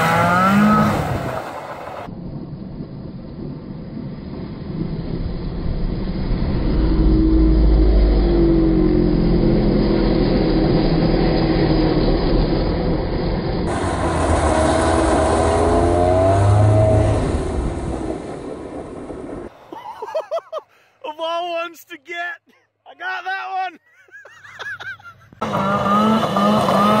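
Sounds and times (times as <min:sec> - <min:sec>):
snowmobile engine revving: 0:00.0 - 0:02.1, 0:06.4 - 0:19.5, 0:24.0 - 0:27.0.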